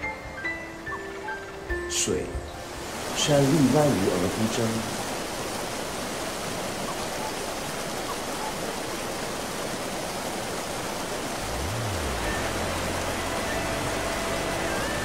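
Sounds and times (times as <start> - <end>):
waterfall rushing: 0.0 - 15.0
low sustained music notes: 11.4 - 15.0.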